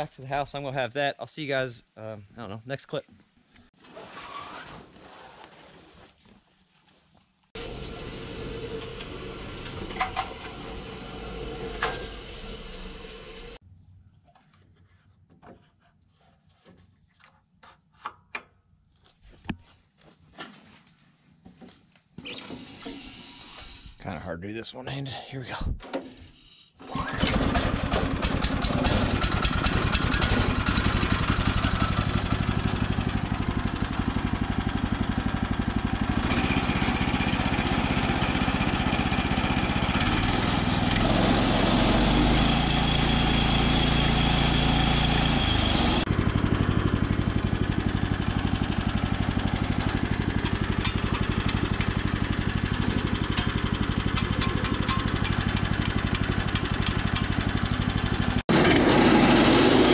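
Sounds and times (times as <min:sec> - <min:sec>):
small engine running: 0:07.6 - 0:13.6, 0:26.8 - 0:59.9.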